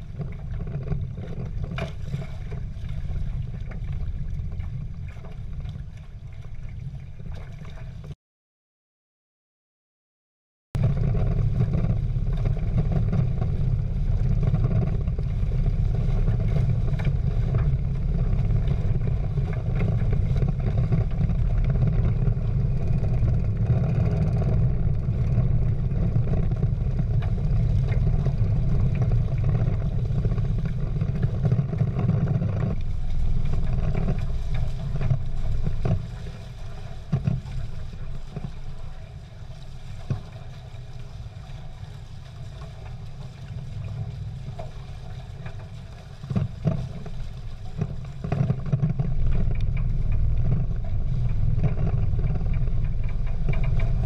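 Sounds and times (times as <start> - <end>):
water rushing along boat hulls: 0.0 - 8.2, 10.8 - 54.0
wind buffeting microphone: 10.8 - 54.0.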